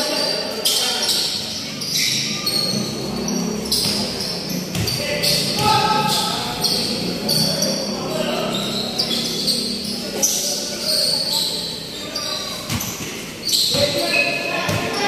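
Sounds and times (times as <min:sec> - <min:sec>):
echoing crowd chatter: 0:00.0 - 0:15.0
sneakers squeaking on court: 0:00.0 - 0:15.0
basketball bouncing: 0:03.7 - 0:06.4, 0:12.7 - 0:14.0.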